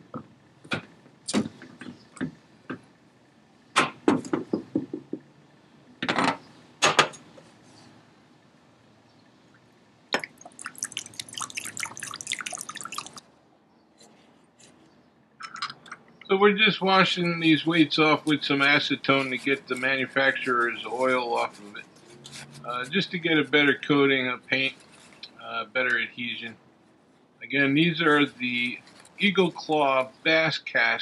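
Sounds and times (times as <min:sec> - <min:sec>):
liquid pouring into glass bowl: 0:10.2 - 0:13.2
metal sinkers clinking and splashing: 0:10.2 - 0:13.2.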